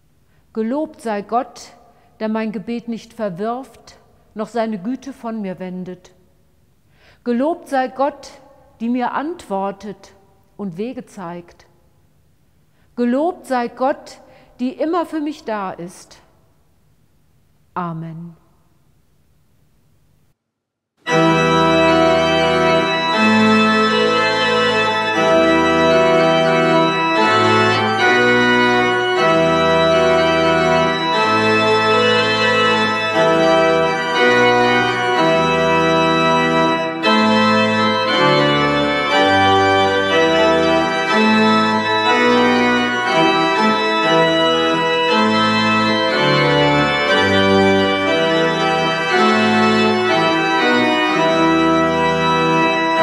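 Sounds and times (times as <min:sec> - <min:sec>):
pipe organ playing hymn: 0:21.0 - 0:53.0.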